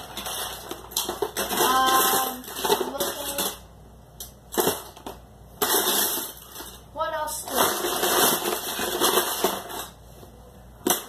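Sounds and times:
plastic parts clicking and clattering: 0:00.0 - 0:03.6, 0:04.2 - 0:06.8, 0:07.4 - 0:10.0.

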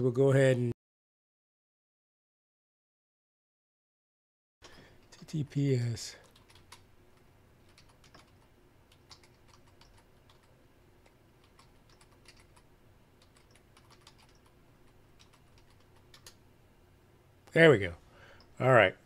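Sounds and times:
faint typing on keyboard: 0:04.6 - 0:16.4.

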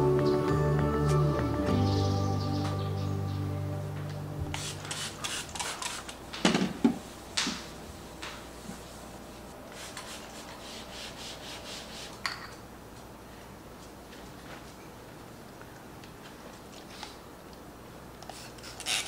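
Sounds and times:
spray bottle spritzes: 0:04.5 - 0:06.2.

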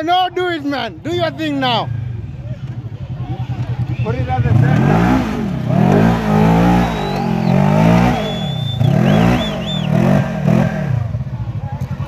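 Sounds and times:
engine revving hard: 0:04.2 - 0:11.2.

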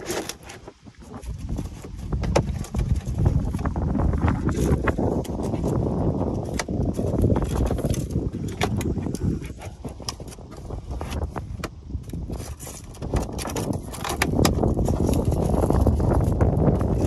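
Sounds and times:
wind buffeting microphone: 0:00.8 - 0:17.0
hands handling wiring clicks: 0:05.1 - 0:15.9.

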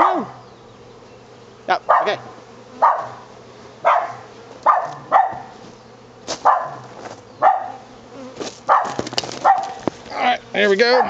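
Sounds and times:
dog barking: 0:00.0 - 0:00.4, 0:01.9 - 0:05.6, 0:06.4 - 0:07.9, 0:08.7 - 0:09.9
bee swarm humming: 0:00.0 - 0:11.0.

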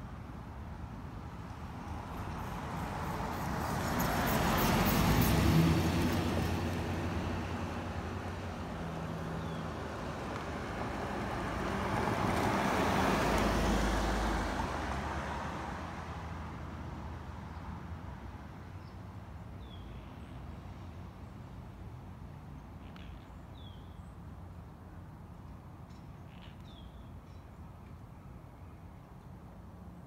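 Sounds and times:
vehicles driving past: 0:00.4 - 0:26.6.

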